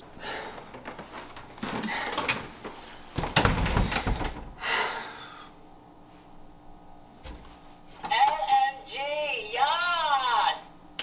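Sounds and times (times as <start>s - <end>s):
door opening and shutting: 3.2s - 4.5s.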